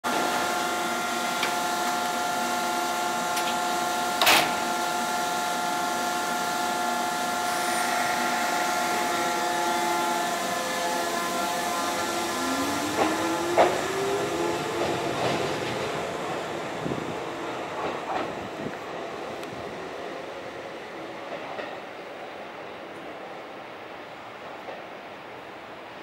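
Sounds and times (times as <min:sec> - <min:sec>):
train equipment humming: 0:00.3 - 0:22.1.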